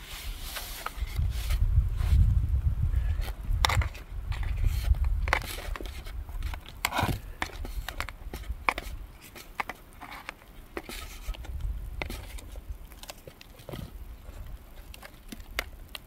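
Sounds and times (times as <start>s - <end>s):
fork scraping foil pan: 3.7s - 11.4s.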